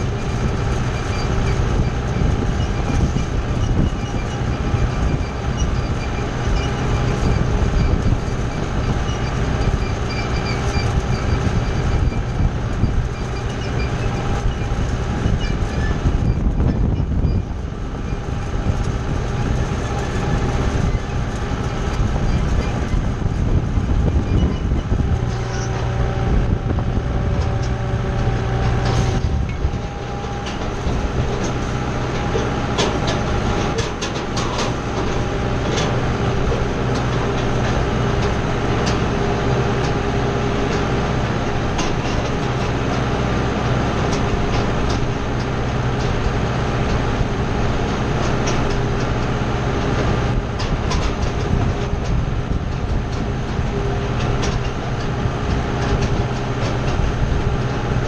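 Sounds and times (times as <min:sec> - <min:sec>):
tractor engine running: 0:00.0 - 0:58.0
hay rake clicks and rattles: 0:17.6 - 0:26.6, 0:27.2 - 0:58.0.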